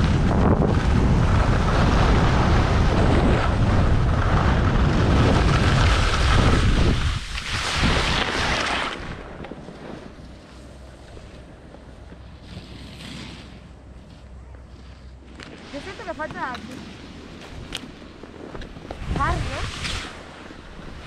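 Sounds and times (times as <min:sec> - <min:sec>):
skis sliding on snow: 0:00.0 - 0:21.0
wind buffeting microphone: 0:00.0 - 0:21.0.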